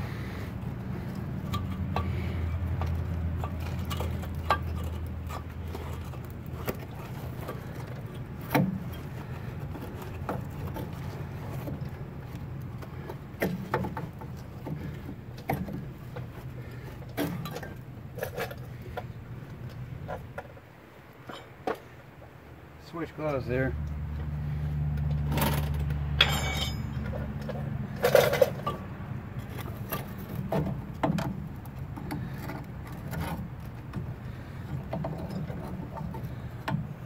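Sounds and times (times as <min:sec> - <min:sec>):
low steady hum: 0:00.0 - 0:37.0
metal clinks and scrapes: 0:01.0 - 0:11.9, 0:21.2 - 0:21.6, 0:25.2 - 0:31.4.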